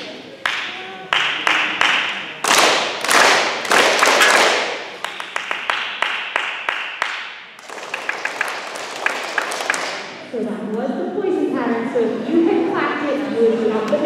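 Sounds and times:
children clapping a rhythm: 0:00.0 - 0:10.2.

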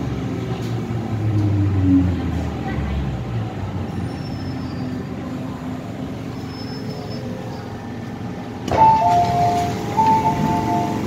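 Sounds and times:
train rumbling: 0:00.0 - 0:11.0
train doors clunking: 0:08.6 - 0:11.0
two-tone door chime: 0:08.8 - 0:11.0.

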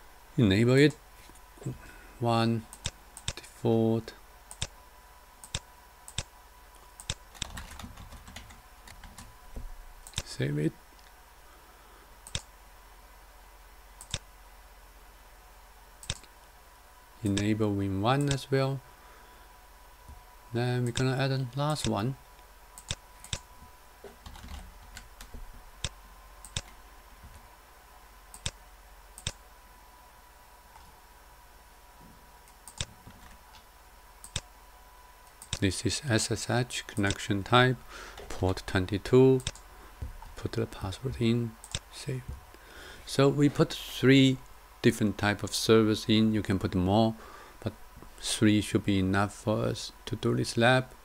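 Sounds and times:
mouse clicks: 0:39.4 - 0:39.6.

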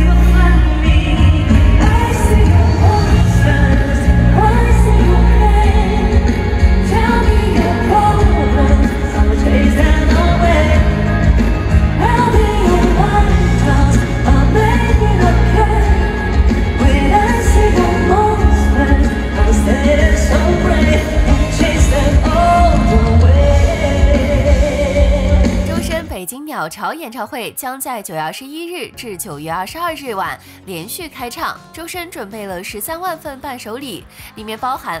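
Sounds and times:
pop-rock band with heavy bass: 0:00.0 - 0:26.1
man singing: 0:16.8 - 0:26.0.

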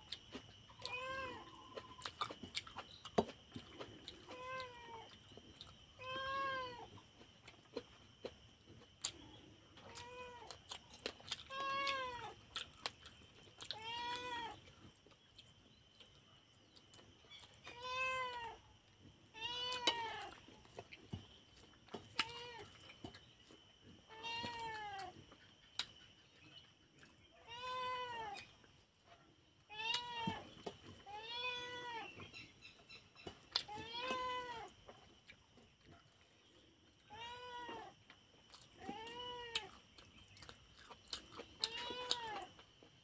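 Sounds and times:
cat meowing: 0:33.7 - 0:34.7.

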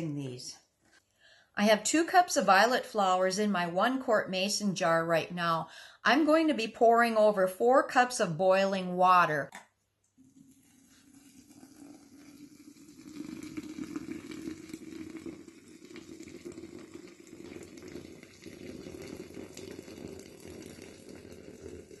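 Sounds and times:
water pouring into glass jar: 0:10.2 - 0:22.0.

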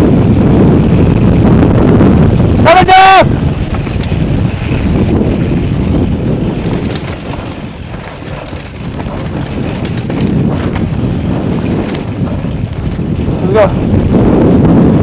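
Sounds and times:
wind buffeting microphone: 0:00.0 - 0:15.0
bike clicks and rattles: 0:03.4 - 0:15.0.

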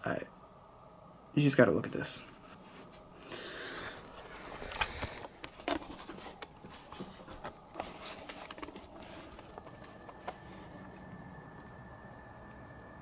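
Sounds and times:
camera handling clicks and scrapes: 0:04.5 - 0:10.5.

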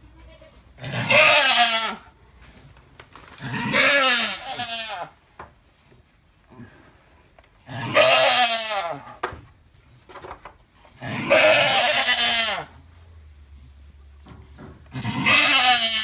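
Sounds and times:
goat bleating loudly: 0:00.1 - 0:02.1, 0:03.4 - 0:05.2, 0:07.6 - 0:09.2, 0:11.0 - 0:12.8, 0:14.9 - 0:16.0.

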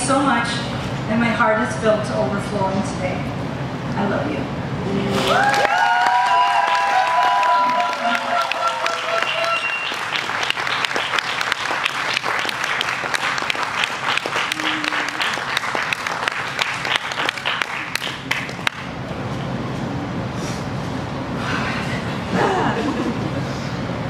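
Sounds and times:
crowd applauding: 0:05.1 - 0:18.9.

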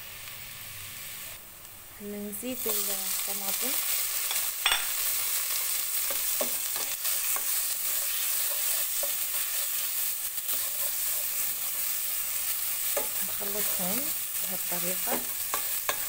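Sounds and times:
vegetables sizzling in a pot: 0:00.0 - 0:16.0
spatula scraping and ticking: 0:06.0 - 0:12.0.

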